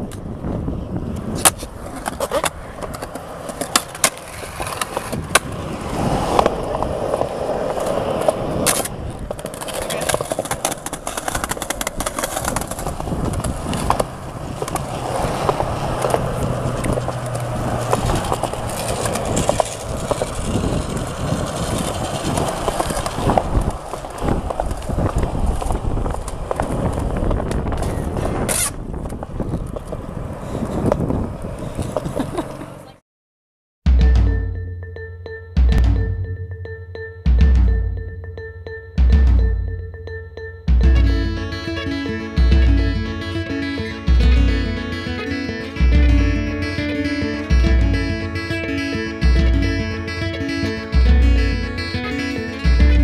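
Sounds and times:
skateboard rolling on concrete: 0.0 - 33.0
skateboard clacks: 1.1 - 30.2.

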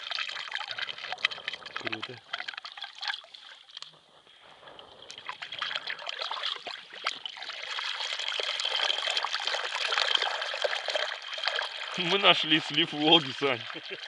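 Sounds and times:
water gurgling down ice hole: 0.0 - 14.0.

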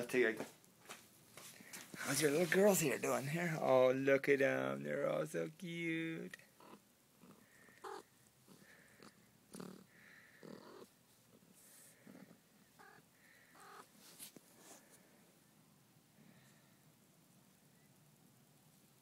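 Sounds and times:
soft rustles: 0.3 - 3.8, 10.8 - 12.5, 13.8 - 15.4
kittens mewing and squeaking: 6.5 - 14.0.

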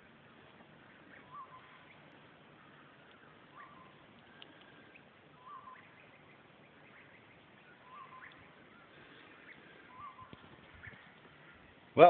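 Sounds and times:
background hiss: 0.0 - 12.0
faint bird calls: 0.0 - 12.0
high bird chirps: 0.9 - 11.8.

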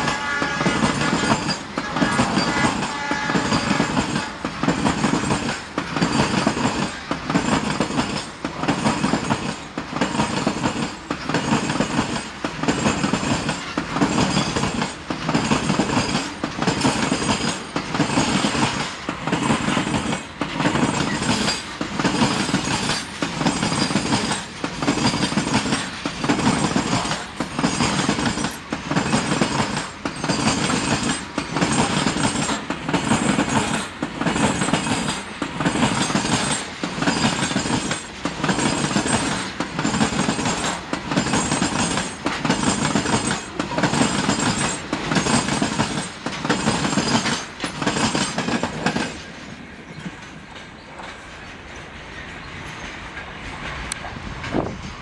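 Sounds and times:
train wheels clattering on rails: 0.0 - 55.0.

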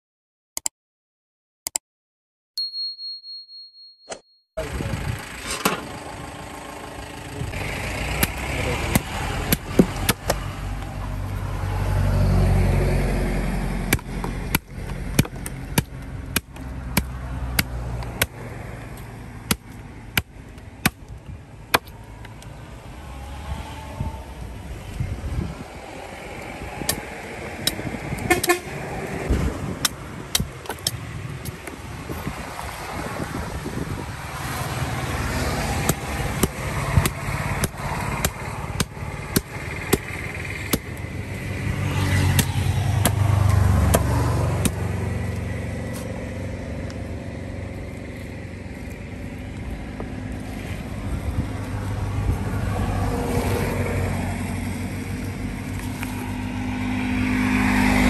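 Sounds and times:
engine running steadily: 4.6 - 11.8, 24.0 - 58.0
vehicle passing: 4.6 - 20.8, 21.9 - 30.3, 31.0 - 58.0
vehicle horn: 28.2 - 28.8.

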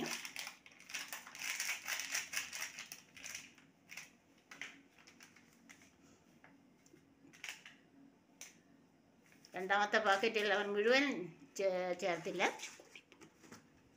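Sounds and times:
sachet crinkling: 0.0 - 5.9.

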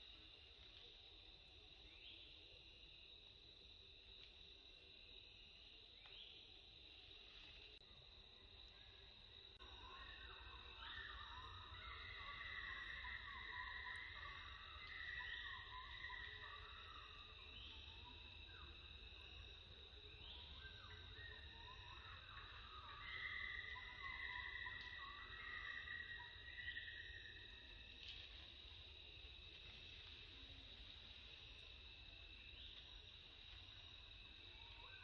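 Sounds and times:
short insect chirps: 12.6 - 35.0.

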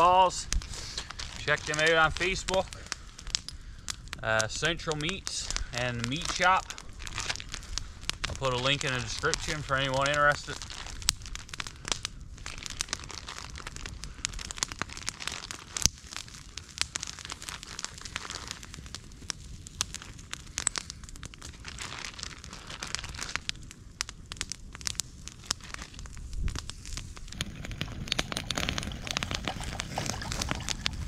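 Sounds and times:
plastic package crinkling: 0.0 - 3.4, 6.0 - 11.5, 12.5 - 15.8, 21.6 - 23.5, 26.8 - 31.0
campfire crackling and popping: 0.0 - 31.0.

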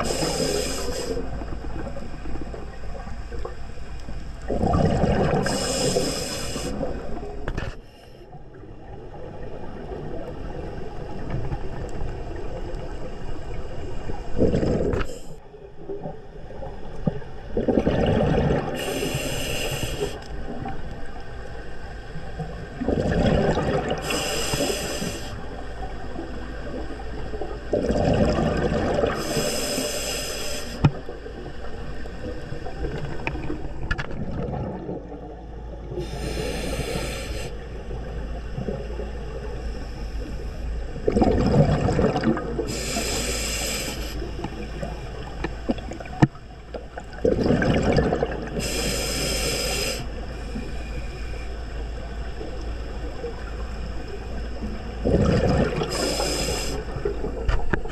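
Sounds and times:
regulator breath hissing: 0.0 - 1.4, 5.4 - 7.1, 18.8 - 20.3, 24.0 - 25.6, 29.1 - 30.9, 36.0 - 37.8, 42.7 - 44.7, 48.6 - 51.7, 55.8 - 57.1
exhaled bubbles rushing: 4.5 - 6.0, 14.0 - 15.0, 17.0 - 18.8, 22.4 - 24.1, 26.6 - 29.2, 31.0 - 36.1, 41.0 - 42.7, 46.9 - 48.6, 55.0 - 57.9.

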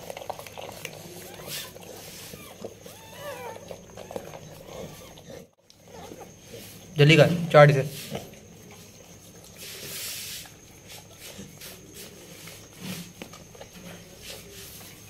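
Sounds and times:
dog licking and snuffling: 0.0 - 6.8.

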